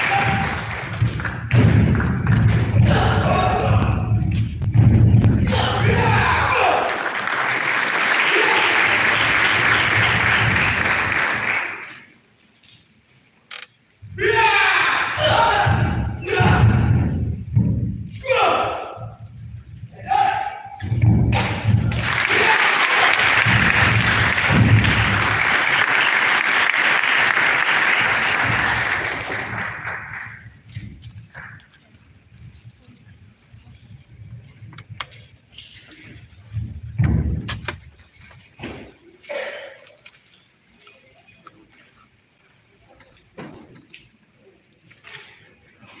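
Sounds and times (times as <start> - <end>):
audience applauding: 0.0 - 2.6, 6.8 - 12.0, 21.4 - 30.6.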